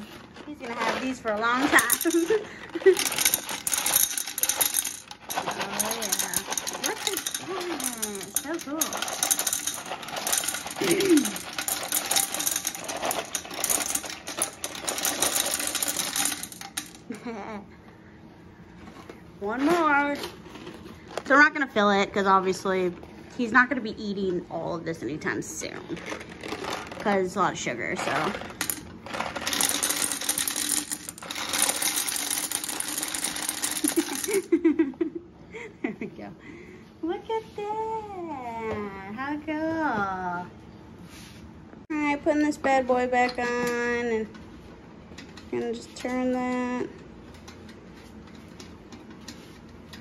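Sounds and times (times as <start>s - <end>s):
gumballs clattering on glass: 0.0s - 17.2s, 25.9s - 34.7s.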